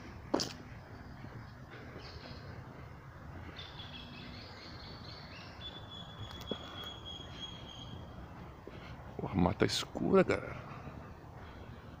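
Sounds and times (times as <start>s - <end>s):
high thin insect or bird calls: 3.6s - 8.0s.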